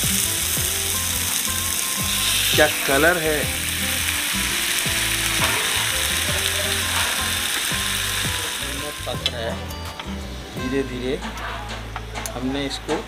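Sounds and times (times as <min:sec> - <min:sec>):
meat sizzling in hot oil: 0:00.0 - 0:09.5.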